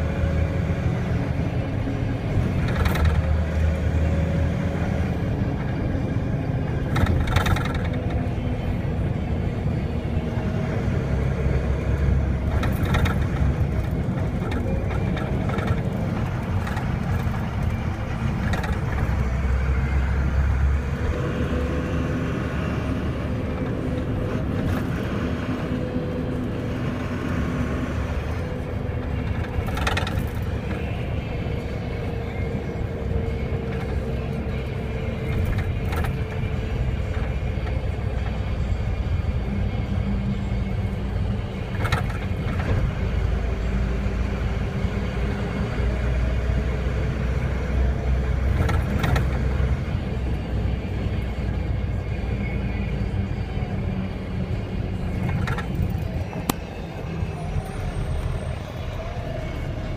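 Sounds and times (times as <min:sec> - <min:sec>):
vehicle engine and tyres rumbling: 0:00.0 - 0:59.9
sharp clicks and rattles: 0:02.3 - 0:03.6, 0:06.7 - 0:08.5, 0:12.4 - 0:19.4, 0:28.3 - 0:32.1.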